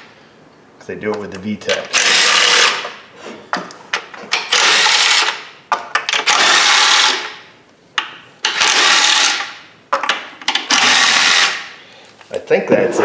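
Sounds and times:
power tool whirring: 1.9s - 2.9s, 4.4s - 5.4s, 6.2s - 7.4s, 8.4s - 9.6s, 10.7s - 11.8s.

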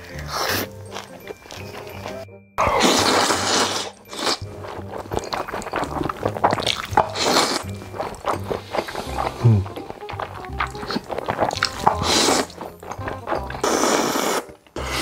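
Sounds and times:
background music with low bass: 0.0s - 15.0s
person chewing: 0.0s - 15.0s.

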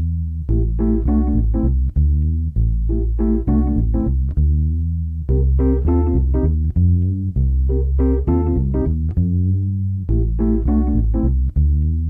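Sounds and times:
keyboard chords: 0.0s - 12.0s
strong bass line: 0.0s - 12.0s.

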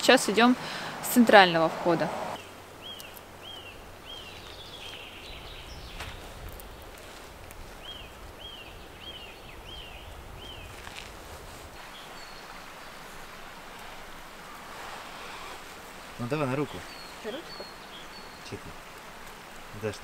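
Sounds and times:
small bird calling: 11.8s - 19.0s.

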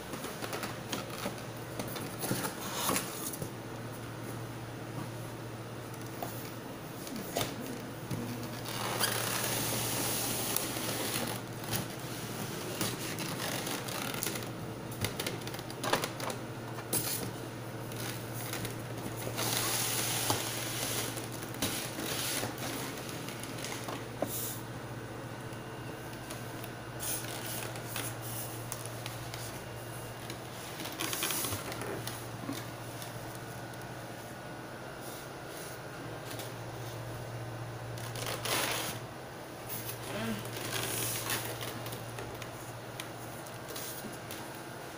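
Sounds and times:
packaging rustling and crinkling: 0.1s - 3.4s, 8.2s - 12.0s, 12.6s - 24.1s, 26.1s - 33.8s, 37.9s - 39.0s, 40.4s - 44.6s.

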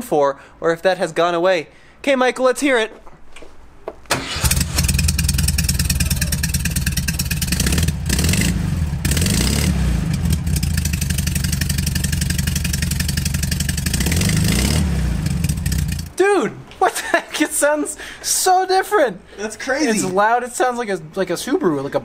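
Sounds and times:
car engine starting and idling: 4.1s - 16.1s.

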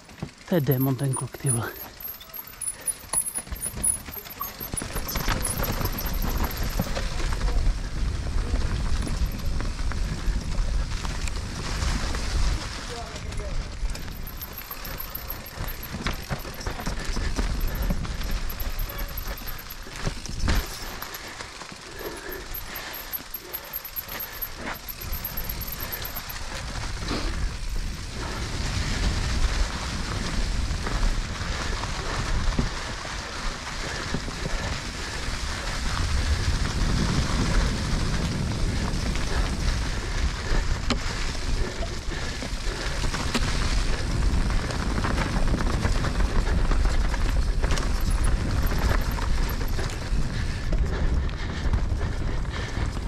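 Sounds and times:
tyres rolling over dirt and rock: 0.0s - 50.6s
bike rattling with sharp knocks: 0.0s - 50.9s
wind rushing on microphone: 25.0s - 53.0s.

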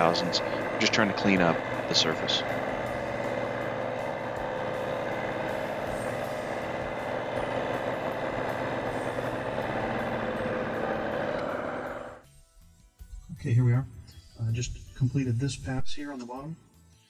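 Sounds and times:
milling machine cutting metal: 0.0s - 12.2s.

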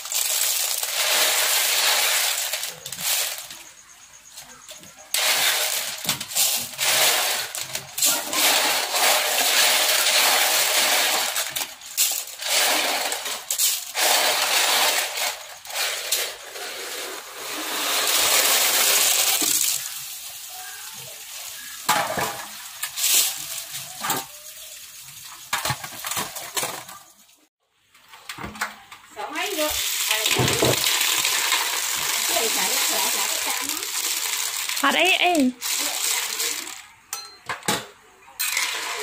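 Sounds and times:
shells clattering in a metal basin: 0.0s - 27.4s, 29.3s - 39.0s.

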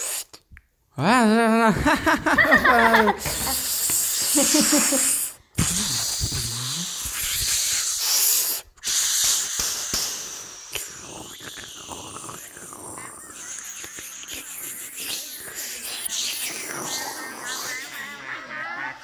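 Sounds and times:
loud hissing: 3.1s - 18.0s.

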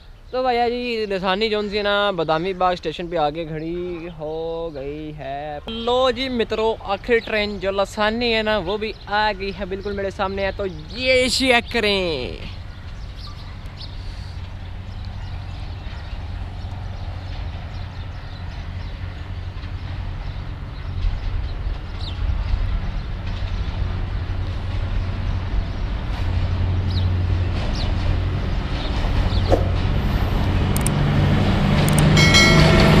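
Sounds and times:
diesel locomotive engine drone: 12.6s - 33.0s.

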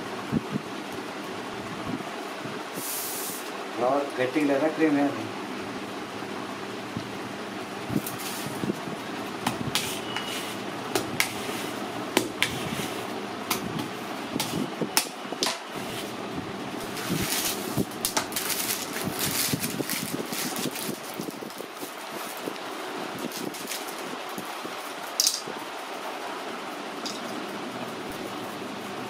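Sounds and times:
steady background hum: 0.0s - 29.0s
metal spatula working cream: 9.7s - 10.6s, 11.2s - 13.2s.

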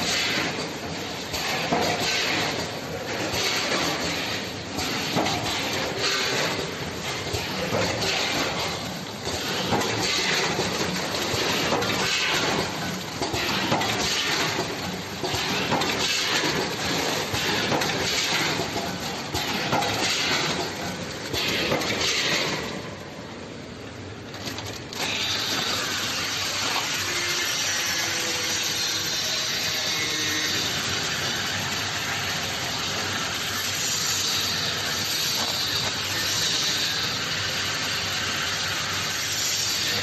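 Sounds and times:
machine mechanical clatter: 0.0s - 40.0s
machine hiss: 25.0s - 40.0s.

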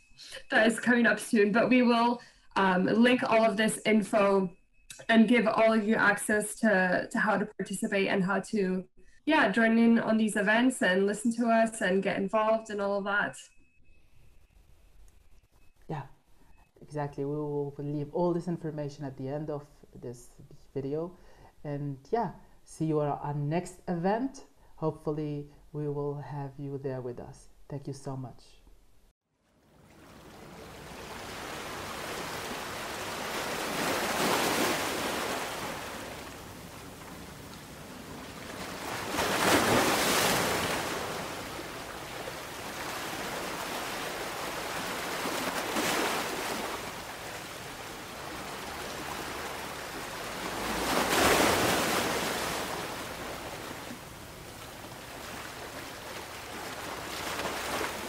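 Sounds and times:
waves breaking on a beach: 29.8s - 58.0s.

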